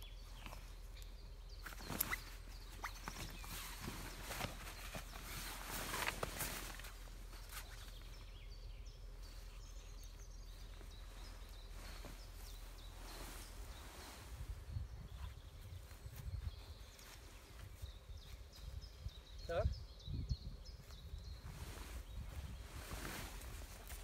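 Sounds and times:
faint bird chirps: 0:00.0 - 0:24.0
tent fabric rustling and flapping: 0:01.6 - 0:08.4, 0:09.2 - 0:18.8, 0:20.8 - 0:24.0.

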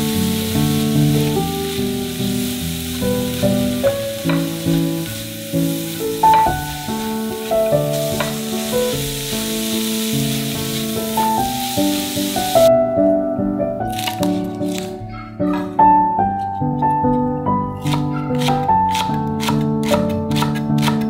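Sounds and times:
food sizzling in oil: 0:00.0 - 0:12.7
melodic background music: 0:00.0 - 0:21.0.

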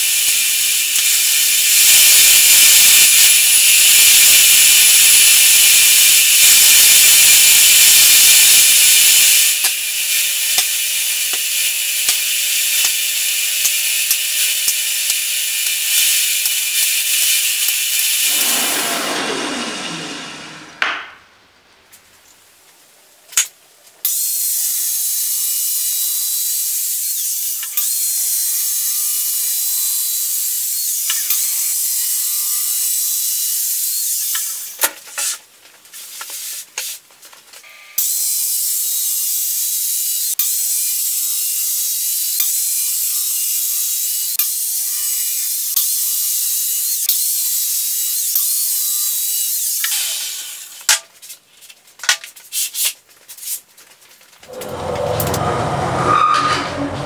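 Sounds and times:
power saw cutting plastic sheet: 0:00.2 - 0:21.3, 0:54.4 - 0:57.0.

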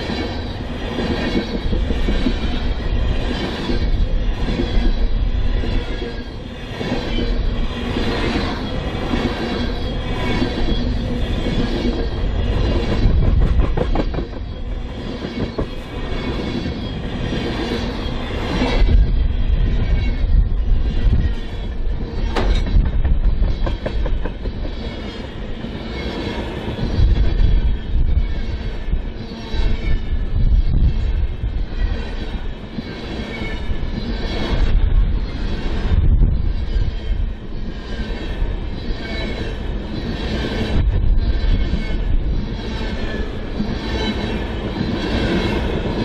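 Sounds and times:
train wheels rumbling and rattling: 0:00.0 - 0:46.0
high wheel squeal: 0:00.3 - 0:13.2, 0:23.4 - 0:45.8.

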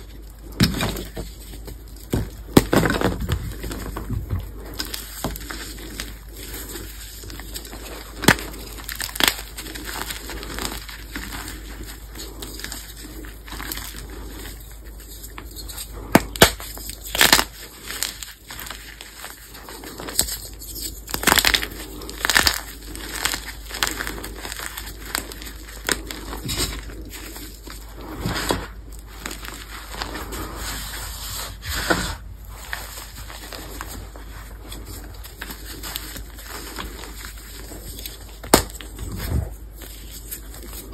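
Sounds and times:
chalk blocks cracking: 0:00.0 - 0:40.9
powdery crumbling rustle: 0:00.0 - 0:40.9.

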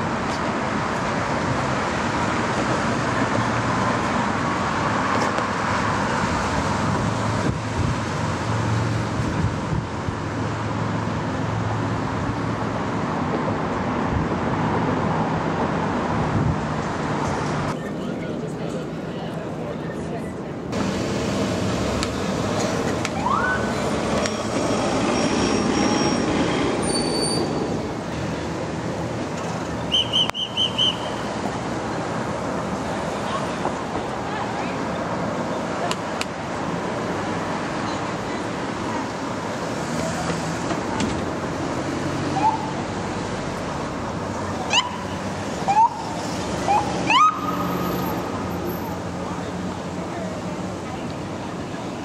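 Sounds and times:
traffic engines running: 0:00.0 - 0:52.0
police siren chirps: 0:23.2 - 0:23.7, 0:46.7 - 0:47.7.

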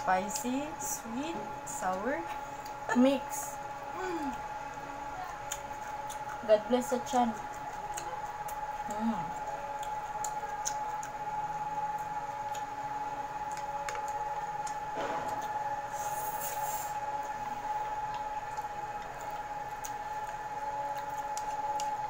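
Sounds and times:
chewing: 0:04.2 - 0:15.8, 0:17.1 - 0:22.0.

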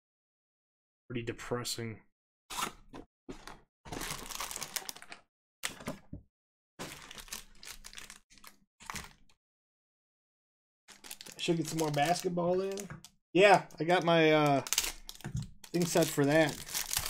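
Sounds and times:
plastic wrappers crinkling and tearing: 0:03.4 - 0:05.8, 0:06.8 - 0:09.3, 0:10.9 - 0:13.1, 0:13.8 - 0:17.0.

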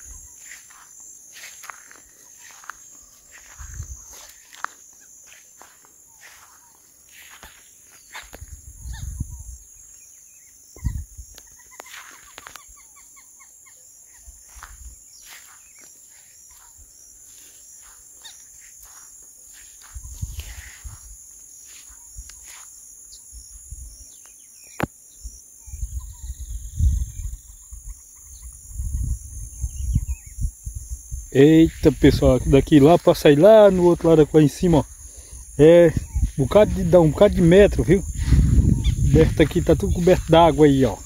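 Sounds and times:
insects buzzing: 0:00.0 - 0:41.0
bird chirps: 0:01.5 - 0:19.0, 0:21.6 - 0:28.9.

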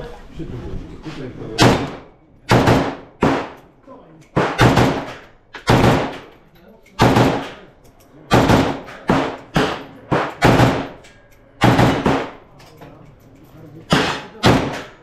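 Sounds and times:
rifle shots echoing: 0:01.6 - 0:03.6, 0:04.4 - 0:06.3, 0:07.0 - 0:07.7, 0:08.3 - 0:11.0, 0:11.6 - 0:12.5, 0:13.9 - 0:15.0.

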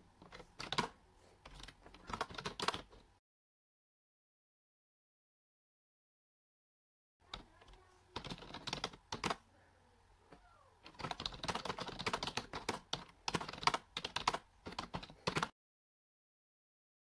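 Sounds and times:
typing on a computer keyboard: 0:00.2 - 0:03.0, 0:07.3 - 0:09.4, 0:10.8 - 0:15.5.

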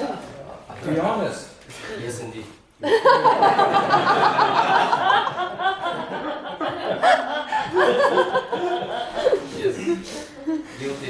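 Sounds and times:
people laughing: 0:02.8 - 0:11.0.

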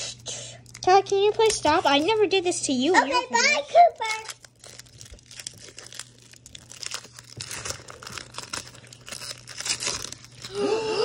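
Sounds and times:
foil wrapper tearing and crinkling: 0:00.6 - 0:02.4, 0:03.9 - 0:10.8.

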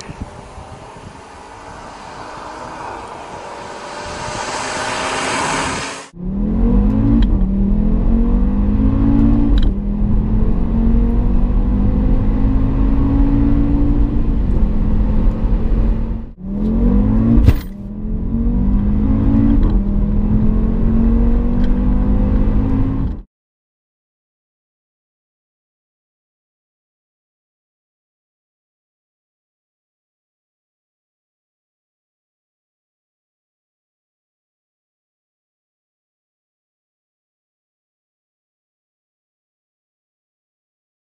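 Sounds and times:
car passing at speed: 0:00.0 - 0:07.2
car engine accelerating: 0:00.0 - 0:23.2.

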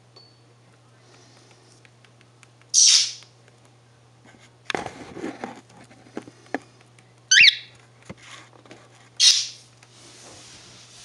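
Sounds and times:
cockatiel chirping and squawking: 0:02.8 - 0:03.2, 0:07.3 - 0:07.7, 0:09.2 - 0:09.6.

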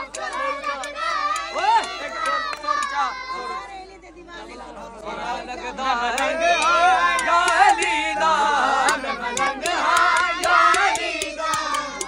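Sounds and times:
sharp claps: 0:00.0 - 0:03.1, 0:06.1 - 0:08.0, 0:08.8 - 0:12.0
crowd shouting and chanting: 0:00.0 - 0:12.0.

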